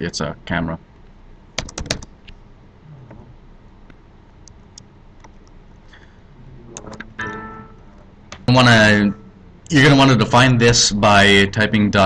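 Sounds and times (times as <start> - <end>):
keyboard typing: 1.6 - 2.1.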